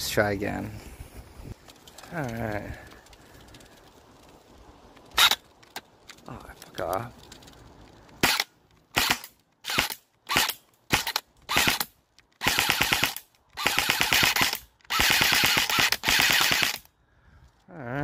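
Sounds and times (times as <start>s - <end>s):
airsoft rifle automatic fire: 8.2s - 16.9s.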